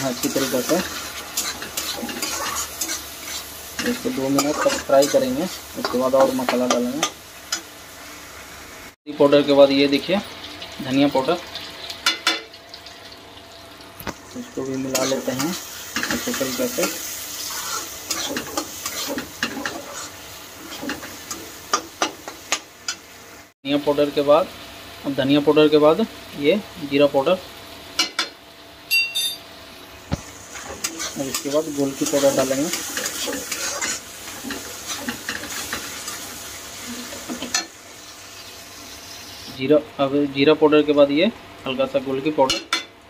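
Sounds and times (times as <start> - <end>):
light sizzle: 0.0 - 43.0
metal spatula scraping pan: 0.2 - 6.5, 16.1 - 21.1, 30.6 - 36.2.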